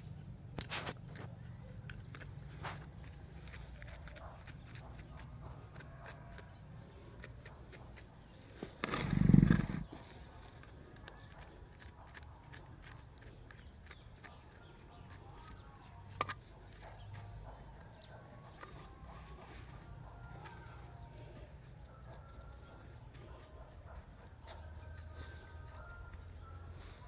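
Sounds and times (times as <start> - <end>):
metal tool scratching soil: 0.7 - 17.3.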